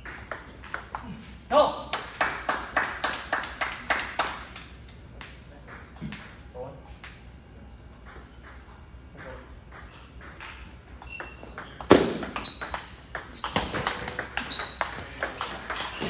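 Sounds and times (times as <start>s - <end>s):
table tennis ball hits and bounces: 0.0s - 1.0s, 8.0s - 16.0s.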